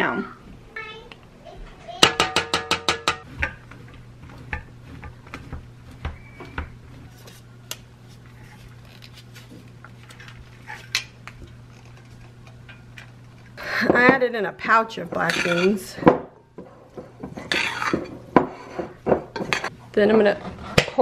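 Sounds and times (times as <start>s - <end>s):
grater scraping in metal bowl: 15.1s - 15.9s, 17.3s - 19.7s.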